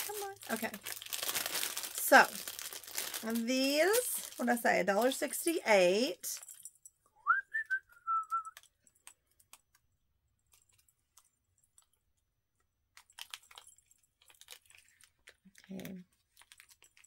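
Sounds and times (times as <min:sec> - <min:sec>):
jewelry packaging rustling: 0:00.0 - 0:07.0, 0:08.4 - 0:17.0
short whistled note: 0:07.2 - 0:08.6.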